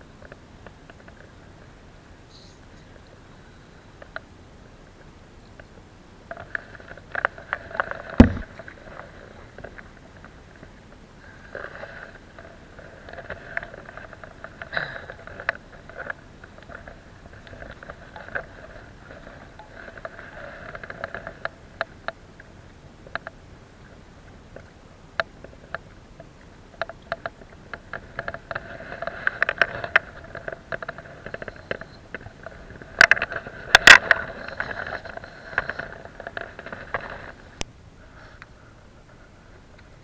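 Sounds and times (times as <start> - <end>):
clicks and knocks: 6.3 - 8.8.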